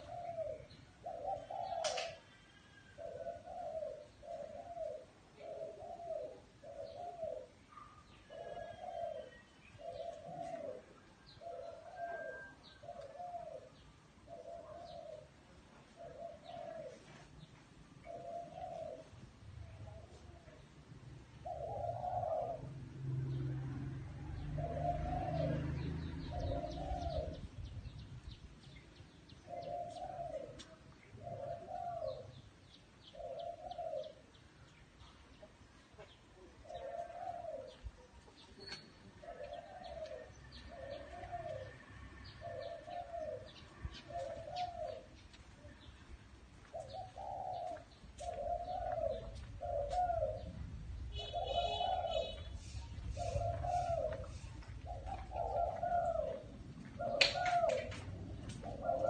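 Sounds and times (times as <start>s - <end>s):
dove cooing: 0.0s - 17.4s, 18.0s - 20.6s, 21.3s - 23.8s, 24.4s - 28.0s, 29.4s - 34.4s, 36.0s - 45.8s, 46.6s - 59.0s
small birds chirping: 24.4s - 59.0s.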